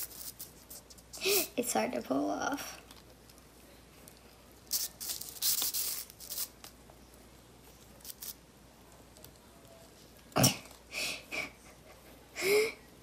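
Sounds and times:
slime tearing and crackling: 4.7s - 6.5s.

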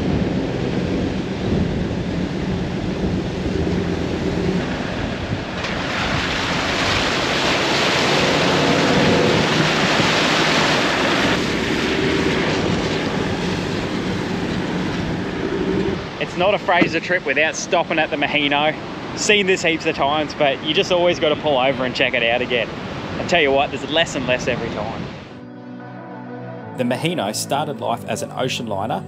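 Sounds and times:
wind buffeting microphone: 0.0s - 17.3s
vehicle engine and tyres: 0.0s - 19.2s.

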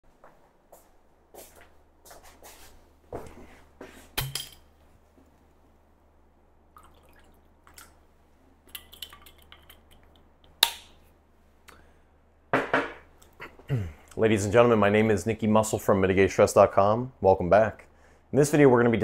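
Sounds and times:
liquid pouring into glass: 6.8s - 8.0s
knock on table: 12.6s - 13.0s.

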